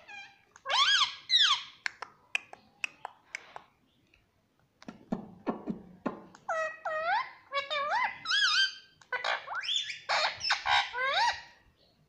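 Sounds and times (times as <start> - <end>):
parakeet raspy chatter: 6.5 - 11.4.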